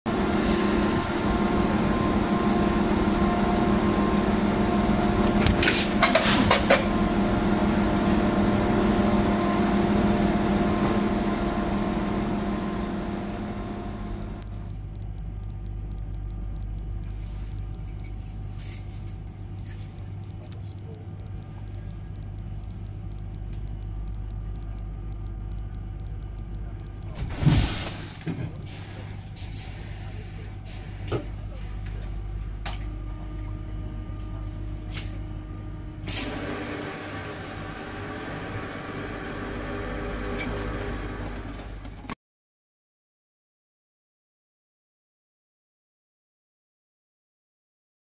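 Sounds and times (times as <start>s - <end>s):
train machinery humming: 0.1s - 42.2s
short sharp clicks or hisses: 27.3s - 29.8s.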